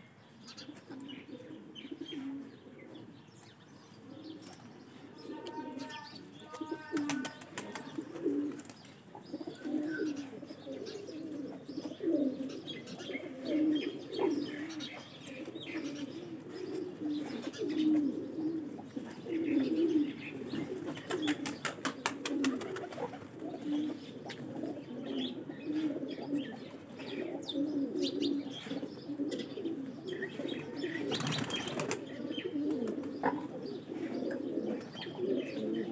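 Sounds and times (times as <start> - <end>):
pigeons cooing: 0.0 - 35.9
wings flapping: 6.9 - 8.8, 20.7 - 23.4, 31.1 - 32.1.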